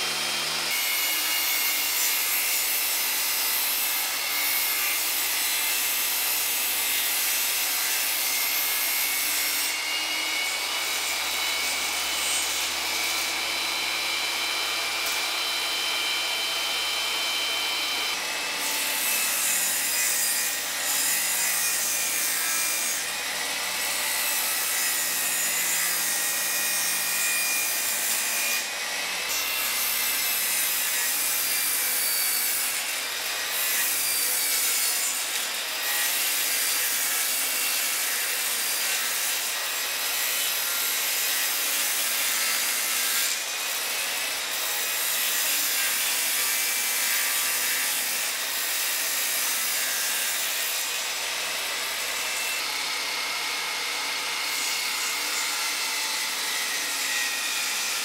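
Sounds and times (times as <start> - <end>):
table saw cutting plywood: 0.0 - 58.0.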